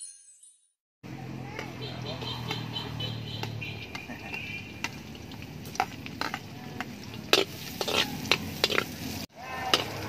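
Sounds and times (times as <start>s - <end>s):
garlic sizzling: 1.7s - 10.0s
metal ladle scraping a wok: 5.7s - 6.5s, 7.1s - 10.0s.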